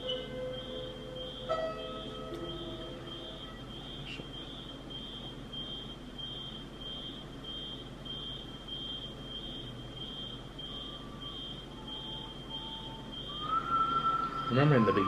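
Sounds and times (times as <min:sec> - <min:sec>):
alarm beeping: 0:00.0 - 0:15.0.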